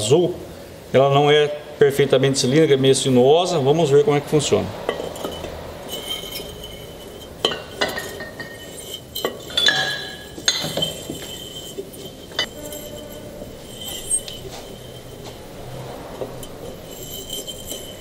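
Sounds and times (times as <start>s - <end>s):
glass bottle clinking against bricks: 4.8s - 18.0s.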